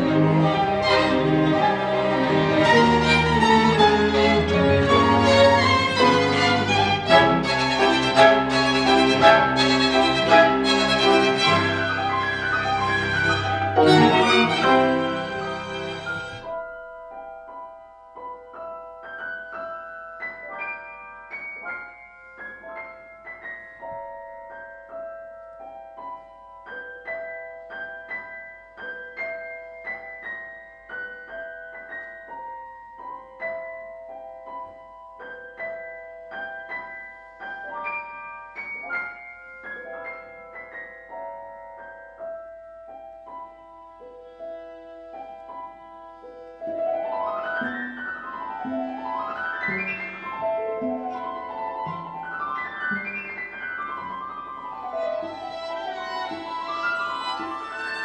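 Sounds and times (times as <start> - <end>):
piano melody: 0.0 - 58.0.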